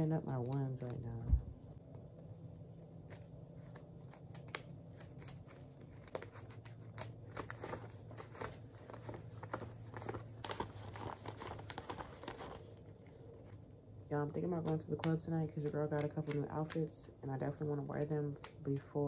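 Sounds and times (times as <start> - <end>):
low steady hum: 0.0 - 19.0
paper bills flicking and rustling: 2.9 - 12.8, 14.4 - 16.9
sharp paper snap: 3.1 - 7.8, 14.4 - 17.0, 17.9 - 19.0.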